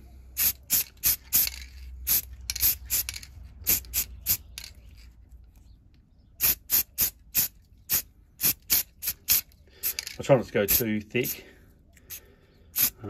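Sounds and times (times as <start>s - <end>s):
spray can hissing bursts: 0.4s - 4.4s, 6.4s - 10.0s, 12.1s - 13.0s.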